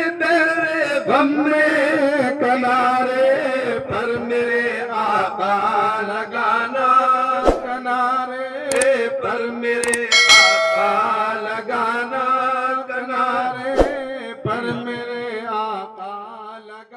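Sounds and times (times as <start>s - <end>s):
clicks: 8.7s - 8.9s, 9.8s - 11.2s
bright bell-like ding: 9.8s - 11.5s.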